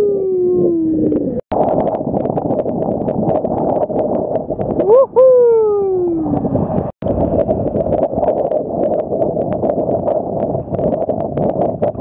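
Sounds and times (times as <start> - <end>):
hoot-like tone sliding downward: 0.0 - 1.4
strong wind: 0.0 - 12.0
choppy seawater rushing: 5.9 - 12.0.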